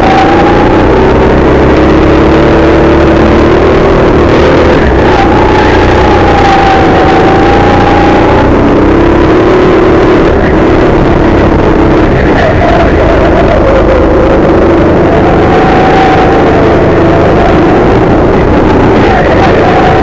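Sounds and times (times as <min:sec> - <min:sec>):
go-kart engines revving: 0:00.0 - 0:20.0.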